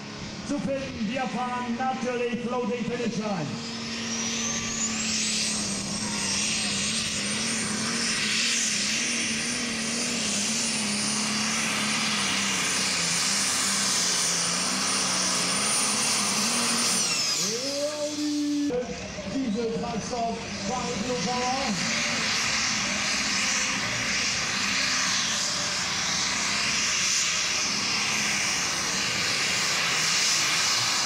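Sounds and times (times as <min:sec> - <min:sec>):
diesel tractor engine: 0:00.0 - 0:31.0
high turbo whistle: 0:03.6 - 0:09.4.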